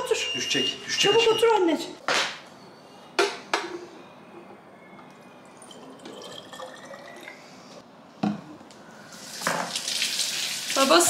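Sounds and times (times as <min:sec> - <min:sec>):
water pouring into bottle: 0:05.6 - 0:07.4.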